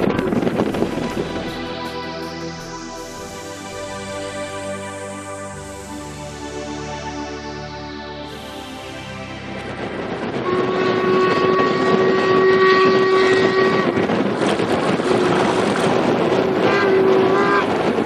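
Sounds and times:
steady rushing background: 0.0 - 18.0
steam whistle blasts: 10.4 - 18.0.

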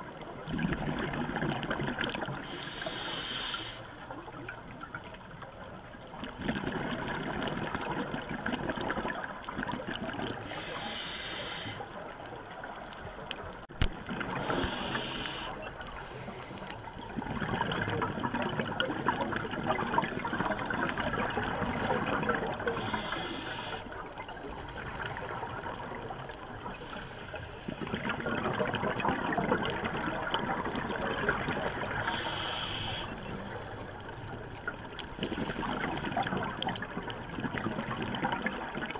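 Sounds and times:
bubbling exhalations underwater: 0.5 - 2.4, 6.2 - 10.4, 17.1 - 22.8, 27.8 - 32.1
hissing regulator inhalations: 2.4 - 3.9, 10.4 - 12.0, 14.4 - 16.9, 21.6 - 25.1, 32.0 - 33.9.

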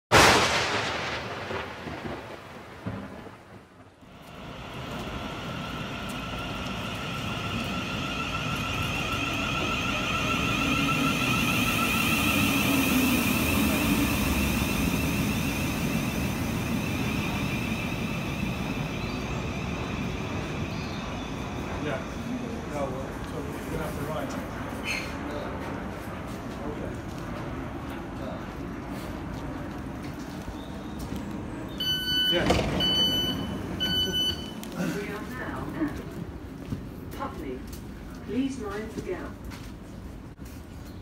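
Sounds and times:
low rumble: 0.2 - 23.8
high whines: 4.0 - 22.9
electric train humming: 4.0 - 24.7, 29.2 - 38.6.

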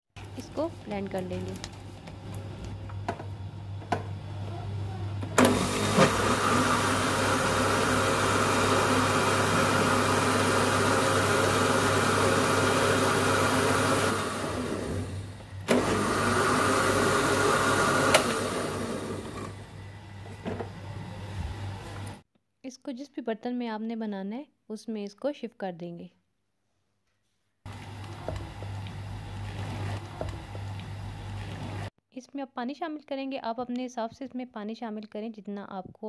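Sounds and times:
blender whirring: 5.2 - 22.2, 27.7 - 31.9
blender switch click: 18.0 - 18.5.

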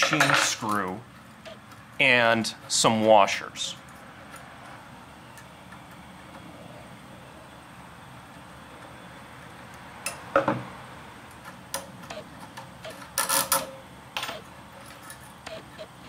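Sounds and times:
metal tools clicking and clinking: 0.0 - 1.0.

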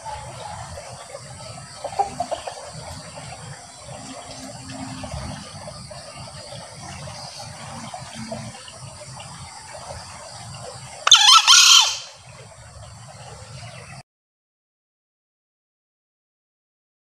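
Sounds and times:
junglefowl crowing: 0.0 - 1.1, 1.7 - 2.7, 11.0 - 12.2.

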